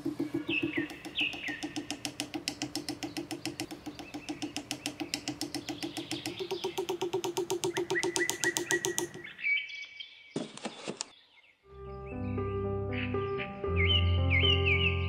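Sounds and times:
bird trilling: 0.0s - 9.7s
falling bird chirps: 0.0s - 12.3s.

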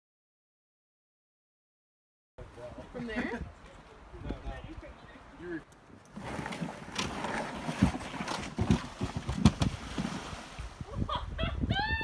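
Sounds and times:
kayak hull scraping down ramp: 6.1s - 10.8s.

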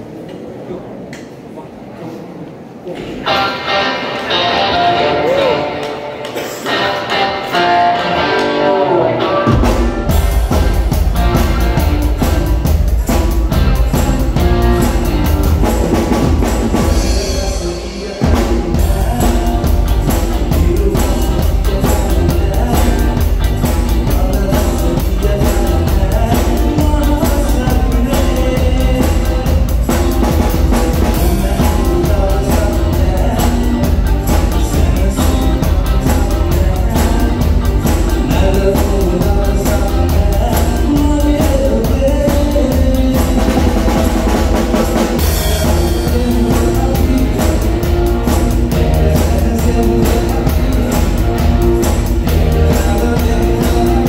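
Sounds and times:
live band playing: 2.9s - 54.0s
male singer: 2.9s - 54.0s
bass drum beat: 9.6s - 54.0s.

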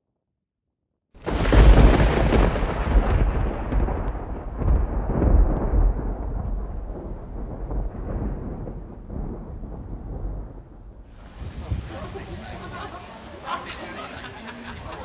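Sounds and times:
deep rumble with crackling: 1.2s - 11.2s.

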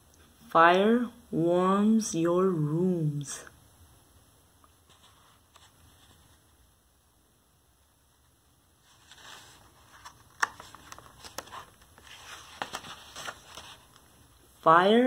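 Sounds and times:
book page turning: 8.8s - 14.2s.

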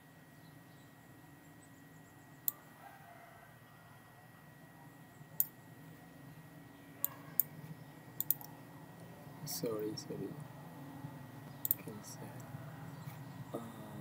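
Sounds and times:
faint steady hum: 0.0s - 14.0s
computer mouse clicks: 8.2s - 8.5s.

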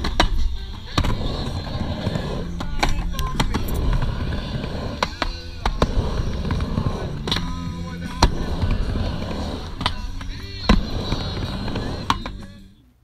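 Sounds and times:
skateboard wheels rolling on ramp: 0.0s - 12.7s.

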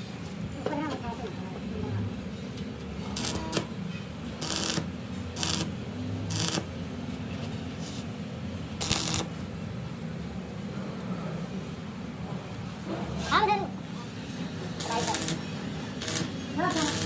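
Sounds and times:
welding arc bursts: 3.1s - 3.8s, 4.4s - 6.8s, 8.8s - 9.4s, 14.7s - 17.0s.

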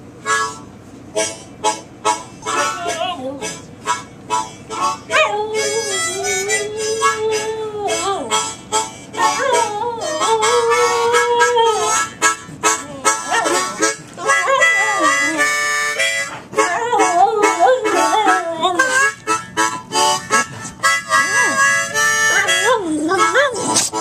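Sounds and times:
blues harmonica: 0.0s - 24.0s
dog howling: 5.1s - 8.3s, 9.3s - 12.1s.

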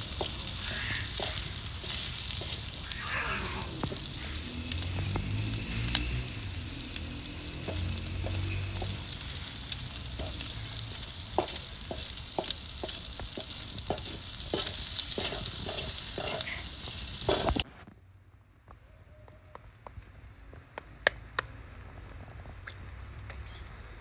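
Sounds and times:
wooden spatula scraping a pan: 0.0s - 5.2s, 7.5s - 17.6s
eggs sizzling in a pan: 0.0s - 17.6s.

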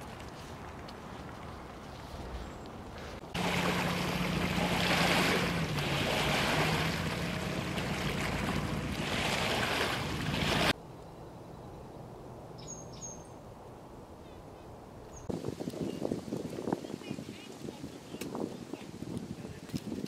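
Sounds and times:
engine hum: 1.6s - 12.6s.

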